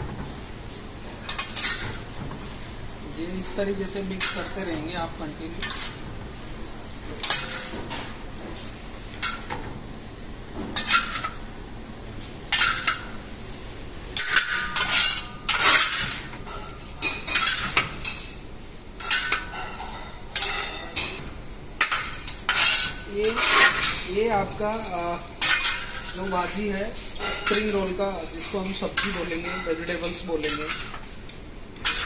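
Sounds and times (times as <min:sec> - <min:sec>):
metal utensils scraping metal pan: 0:01.2 - 0:02.0, 0:03.2 - 0:06.0, 0:07.2 - 0:08.0, 0:10.8 - 0:11.4, 0:14.2 - 0:18.3, 0:19.0 - 0:21.2, 0:21.8 - 0:31.2, 0:31.8 - 0:32.0.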